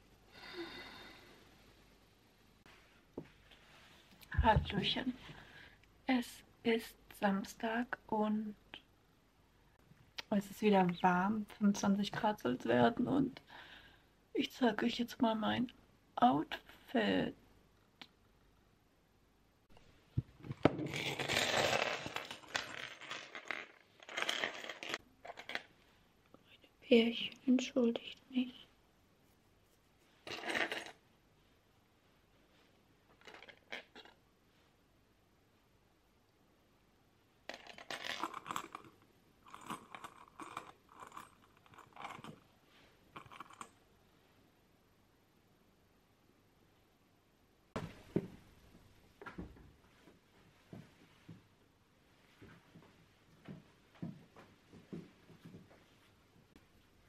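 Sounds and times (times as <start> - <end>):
metal jewelry clinking: 20.9 - 25.6, 37.5 - 42.5, 43.2 - 43.7.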